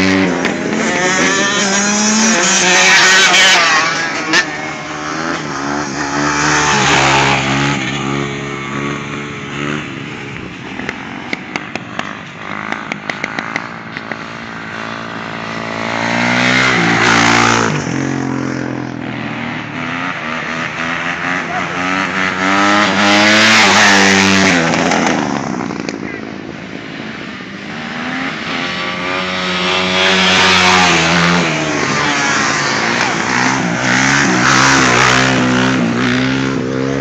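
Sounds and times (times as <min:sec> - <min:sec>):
dirt bike engines revving past: 0:00.0 - 0:37.0.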